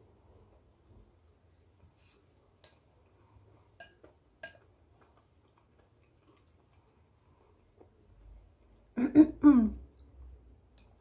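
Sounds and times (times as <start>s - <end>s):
chopsticks clinking on ceramic bowl: 3.8s - 4.7s.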